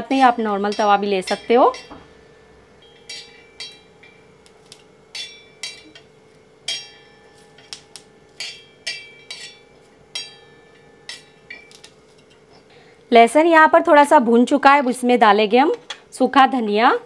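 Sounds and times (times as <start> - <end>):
metal spatula tapping on iron pan: 0.0 - 2.2, 2.8 - 12.4
faint steady hum: 0.0 - 17.0.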